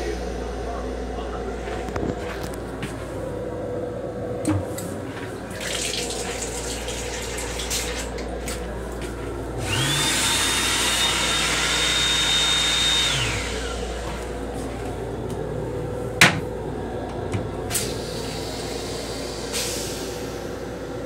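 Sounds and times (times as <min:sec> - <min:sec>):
faucet water stream hissing: 0:05.6 - 0:08.2
hand dryer blower whine: 0:09.5 - 0:21.0.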